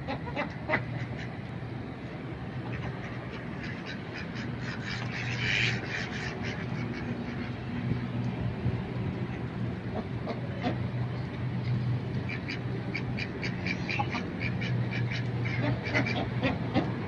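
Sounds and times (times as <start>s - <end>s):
ducks quacking: 0.0s - 1.4s, 2.6s - 7.8s, 12.2s - 17.0s.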